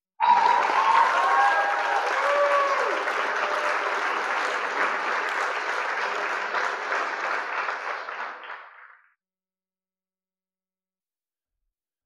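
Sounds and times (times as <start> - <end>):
crowd applauding: 0.2 - 9.1.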